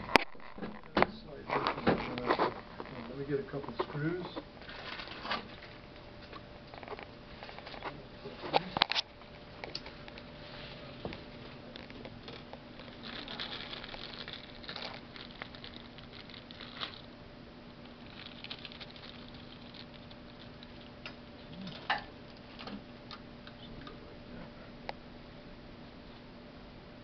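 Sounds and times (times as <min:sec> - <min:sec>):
plastic bag rustling: 0:01.4 - 0:05.8, 0:06.8 - 0:17.1, 0:17.8 - 0:22.8.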